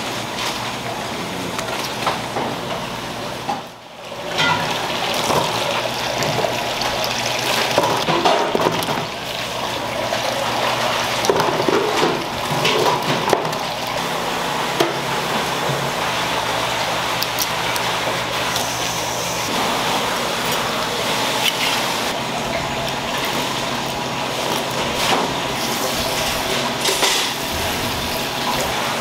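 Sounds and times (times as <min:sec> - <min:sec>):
water splashing and sloshing: 0:00.0 - 0:29.0
water pouring from pipe: 0:04.1 - 0:15.3.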